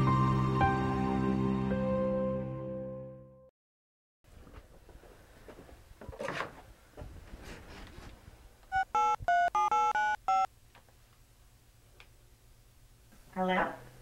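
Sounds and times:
phone keypad beeps: 8.7s - 10.5s.

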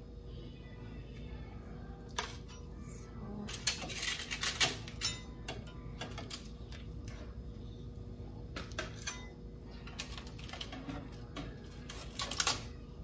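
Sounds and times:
tongs clinking on baking sheet: 3.5s - 6.4s, 8.6s - 9.4s.

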